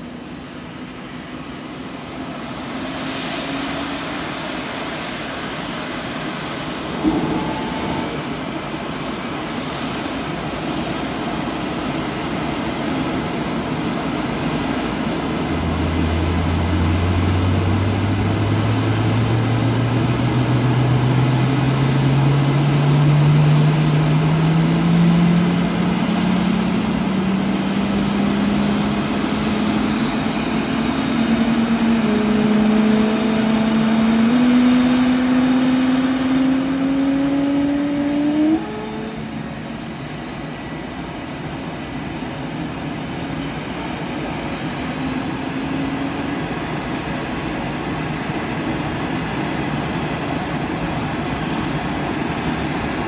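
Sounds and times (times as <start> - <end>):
engine spooling up hum: 0.0 - 53.0
jet engine rushing: 0.0 - 53.0
sharp knock: 7.0 - 8.7.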